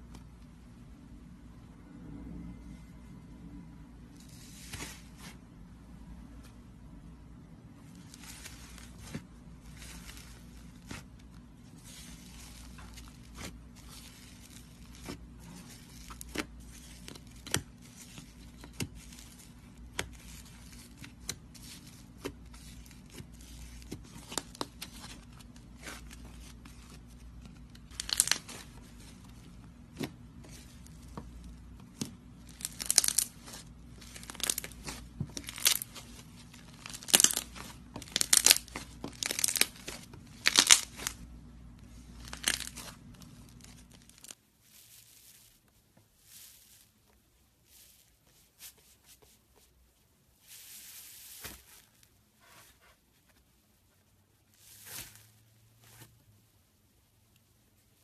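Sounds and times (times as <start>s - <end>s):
faint steady hum: 0.0s - 58.0s
slime crackling bursts: 27.8s - 28.8s, 32.4s - 41.2s.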